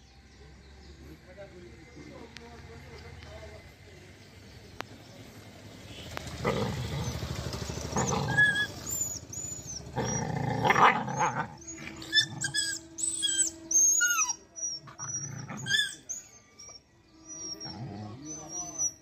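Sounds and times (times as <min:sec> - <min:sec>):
dogs growling: 0:06.4 - 0:16.4, 0:17.4 - 0:19.0.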